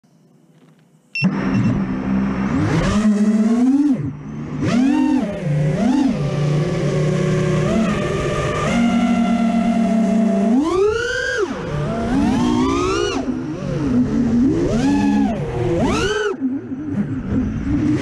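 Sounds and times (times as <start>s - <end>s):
drone motors whining: 0.1s - 18.0s
short high beeps: 1.1s - 1.8s.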